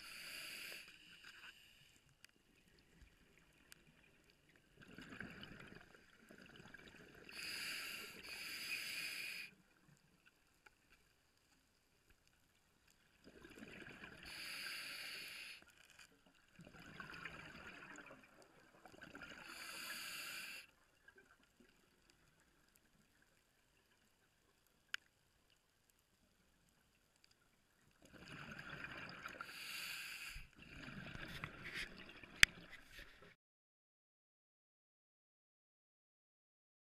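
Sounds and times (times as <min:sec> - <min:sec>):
underwater breath bubbles: 0:04.8 - 0:09.5, 0:13.2 - 0:15.6, 0:16.6 - 0:20.7, 0:28.1 - 0:33.3.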